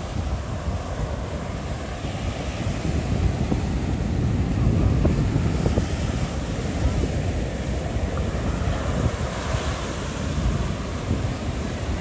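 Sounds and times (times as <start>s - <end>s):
surf breaking on beach: 0.0s - 12.0s
wind buffeting microphone: 0.0s - 12.0s.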